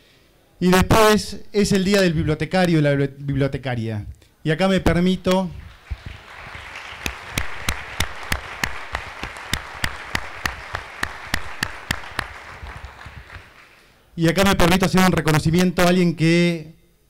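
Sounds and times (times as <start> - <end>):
sharp single claps: 5.3 - 13.8
audience applauding: 5.6 - 13.9.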